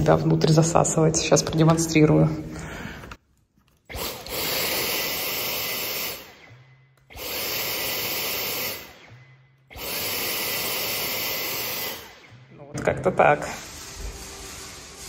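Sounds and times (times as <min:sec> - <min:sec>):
cordless vacuum running: 0:03.9 - 0:15.0.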